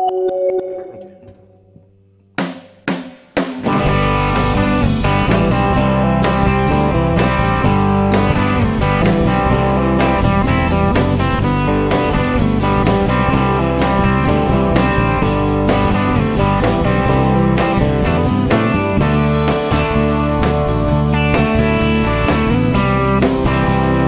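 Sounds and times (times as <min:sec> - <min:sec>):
sharp drum hits: 0:02.4 - 0:05.5
live rock band playing: 0:02.4 - 0:24.0.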